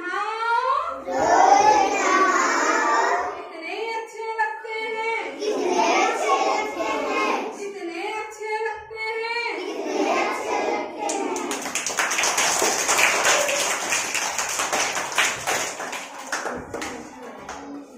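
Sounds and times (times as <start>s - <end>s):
children singing: 1.0s - 3.4s, 5.3s - 7.6s, 9.5s - 11.8s
children clapping hands: 11.0s - 17.9s.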